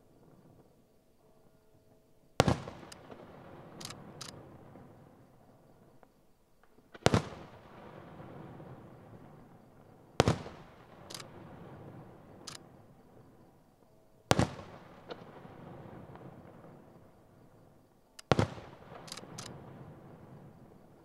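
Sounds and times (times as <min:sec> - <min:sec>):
faint firework cracks: 0:02.4 - 0:04.4, 0:06.0 - 0:08.3, 0:10.2 - 0:11.5, 0:14.3 - 0:16.8, 0:18.2 - 0:20.0
firework booms with echo: 0:02.4 - 0:05.0, 0:06.9 - 0:12.4, 0:14.3 - 0:17.1, 0:18.3 - 0:20.9.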